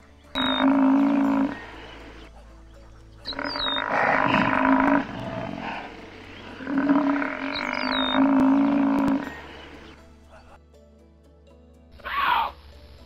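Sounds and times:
water buffalo calling: 0.0s - 2.4s, 3.2s - 10.0s, 12.0s - 12.6s.

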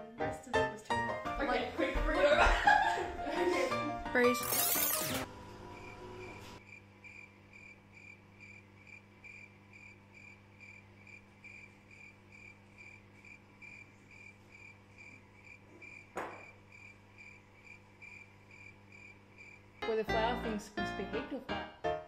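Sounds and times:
cricket chirps: 5.7s - 19.8s.

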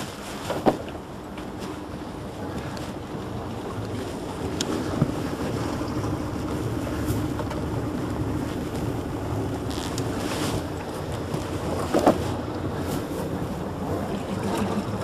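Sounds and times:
boat engine idling: 0.0s - 15.0s.

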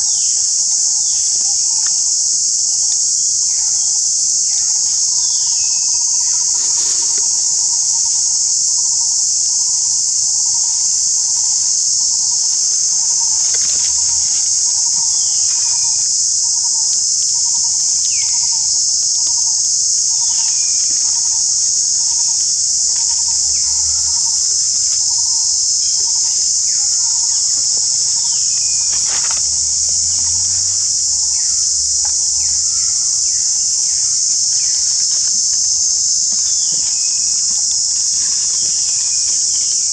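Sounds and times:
high-pitched insect chorus buzzing: 0.0s - 39.9s
low pulsing note: 22.8s - 35.6s.

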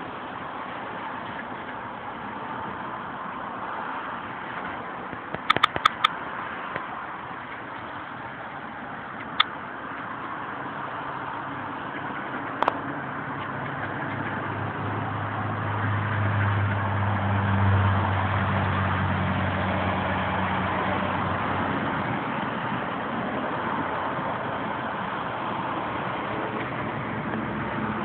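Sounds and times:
steady background noise: 0.0s - 28.0s
vehicle engine humming: 0.0s - 28.0s
sharp click: 5.1s - 6.9s.

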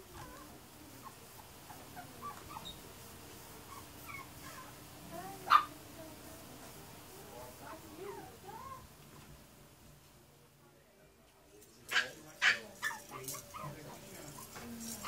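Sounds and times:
puppies whimpering: 1.7s - 2.8s, 3.7s - 4.8s.

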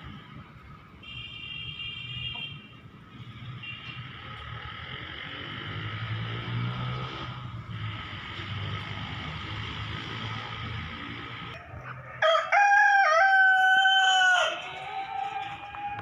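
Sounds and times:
rooster crowing: 11.6s - 16.0s.

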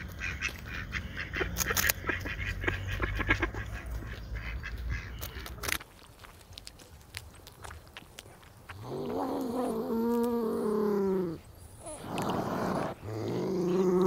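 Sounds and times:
nutria moaning calls: 8.8s - 14.0s.

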